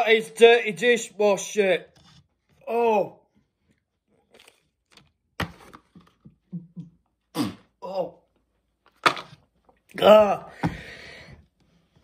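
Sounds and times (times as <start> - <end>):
man grunting and groaning: 7.5 - 8.2, 9.9 - 10.7.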